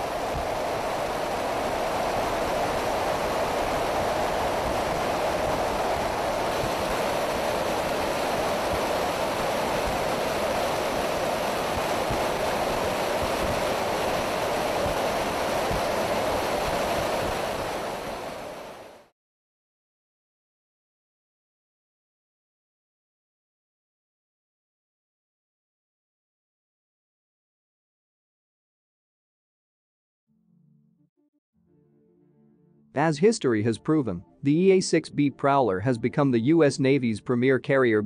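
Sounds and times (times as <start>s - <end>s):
jet aircraft roar: 0.0s - 18.8s.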